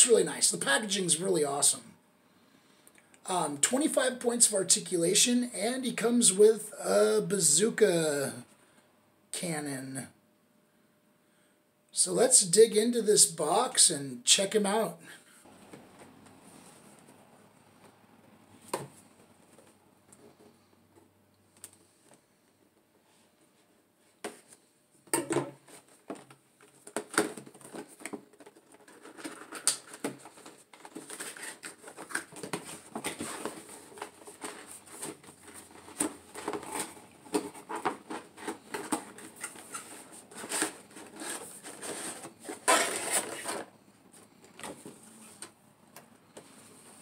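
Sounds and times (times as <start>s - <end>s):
packaging rustling and scraping: 25.6s - 45.6s.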